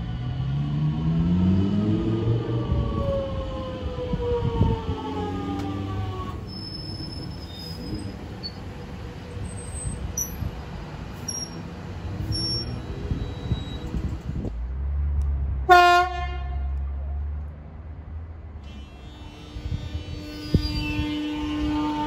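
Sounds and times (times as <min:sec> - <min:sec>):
electric train rumbling: 0:00.0 - 0:16.6, 0:18.6 - 0:22.0
train wheel squeals: 0:06.4 - 0:10.5, 0:11.2 - 0:14.2, 0:19.9 - 0:22.0
train horn blast: 0:15.7 - 0:16.8, 0:18.6 - 0:22.0.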